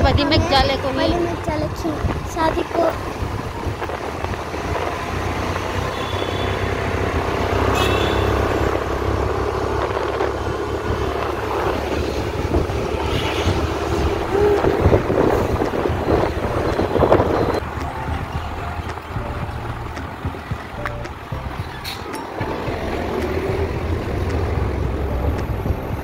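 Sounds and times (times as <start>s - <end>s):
road noise: 0.0s - 26.0s
wind on microphone: 0.0s - 26.0s
motorbike engine running: 3.3s - 26.0s.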